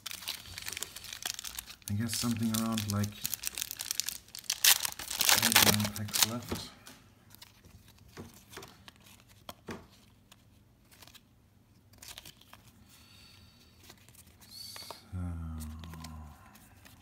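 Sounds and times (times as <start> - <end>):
pack wrapper crinkling: 0.0 - 6.7
trading cards rustling and clicking: 0.0 - 12.8, 13.8 - 17.0.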